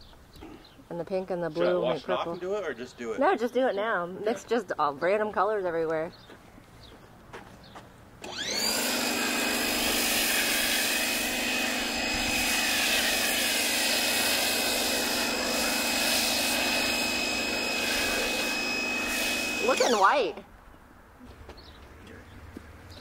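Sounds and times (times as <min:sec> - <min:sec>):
pressure washer whine: 0:08.2 - 0:20.4
spray hissing: 0:09.7 - 0:20.2.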